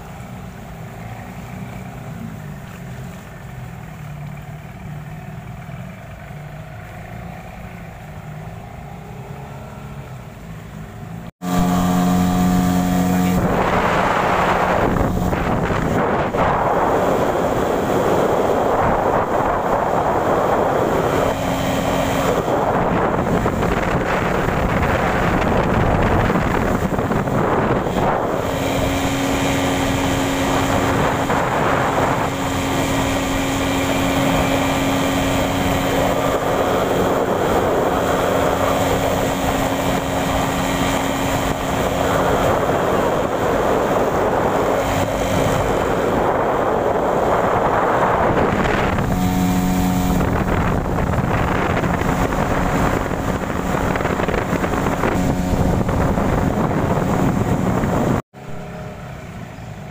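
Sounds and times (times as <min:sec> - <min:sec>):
boat engine running: 0:00.0 - 0:59.9
water rushing from wake: 0:00.0 - 0:59.9
wind on microphone: 0:11.4 - 0:58.6.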